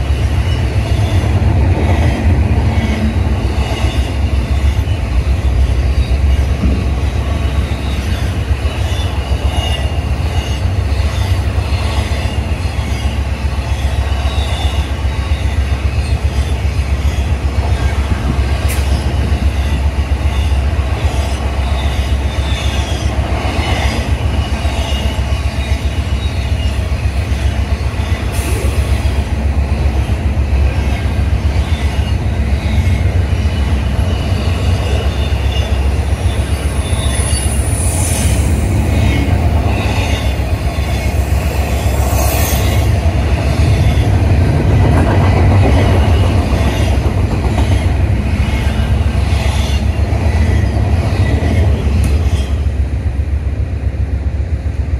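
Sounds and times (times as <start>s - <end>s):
high wheel squeal: 0.0s - 1.4s, 7.4s - 29.3s, 30.6s - 44.2s
freight train wheels rumbling: 0.0s - 54.9s.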